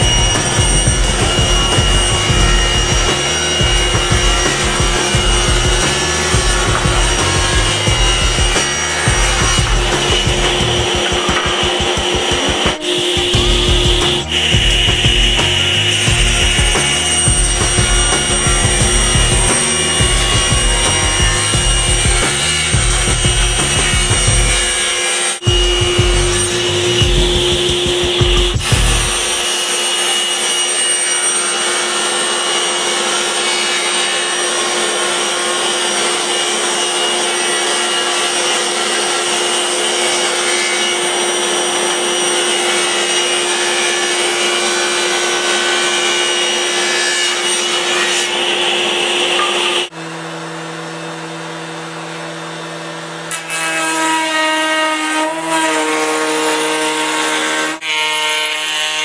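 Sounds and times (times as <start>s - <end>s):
steady machine hum: 0.0s - 24.7s, 25.4s - 29.5s
power tool cutting wood: 0.0s - 59.0s.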